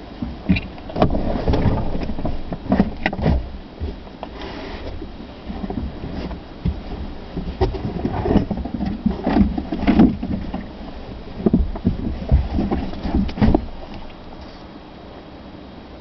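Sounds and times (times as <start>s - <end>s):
car engine and tyre rumble: 0.0s - 16.0s
knocks and rattles: 0.5s - 4.0s, 5.5s - 14.0s.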